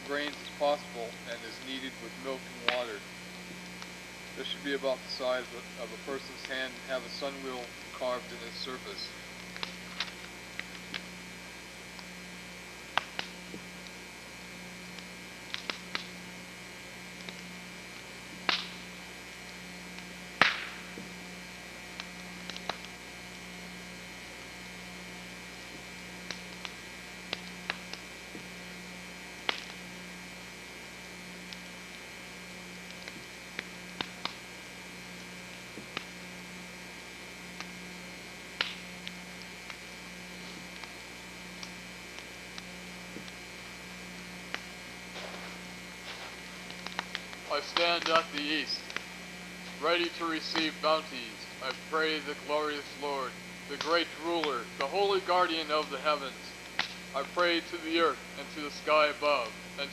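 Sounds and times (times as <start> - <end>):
electrical hum with whine: 0.0 - 59.9
sharp clicks and pops: 0.1 - 11.2, 12.9 - 14.0, 14.9 - 16.2, 17.1 - 19.1, 19.9 - 21.2, 21.9 - 23.4, 25.6 - 28.6, 29.4 - 29.9, 31.4 - 32.1, 32.8 - 34.5, 35.6 - 36.2, 37.5 - 52.4, 53.6 - 57.4.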